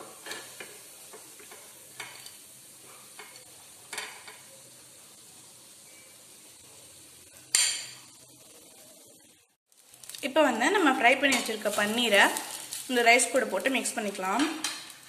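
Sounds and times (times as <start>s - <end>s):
steel spoon scraping a pan: 0.0s - 4.5s, 7.3s - 9.0s, 11.2s - 15.0s
hot oil sizzling faintly: 0.0s - 15.0s.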